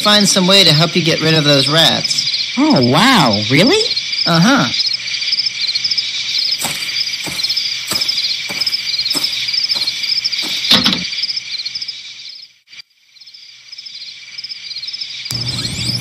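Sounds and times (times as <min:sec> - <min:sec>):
crickets chirping: 0:00.0 - 0:16.0
footsteps: 0:06.5 - 0:11.0.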